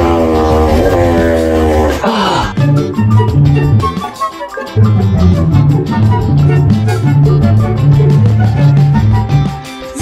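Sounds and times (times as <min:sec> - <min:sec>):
tune with a quick beat: 0:02.5 - 0:10.0.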